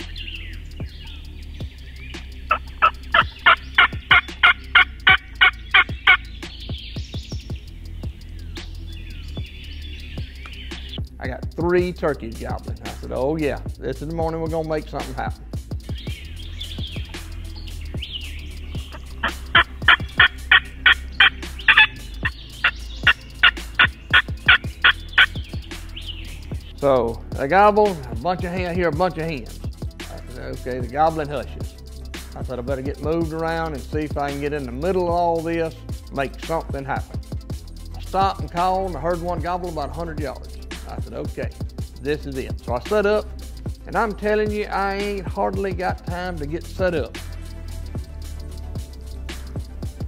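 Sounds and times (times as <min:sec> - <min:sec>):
wild turkeys calling: 0:00.0 - 0:11.2, 0:14.0 - 0:26.9
songbirds chirping faintly: 0:00.0 - 0:50.0
turkey yelping: 0:02.5 - 0:06.5, 0:18.8 - 0:26.3.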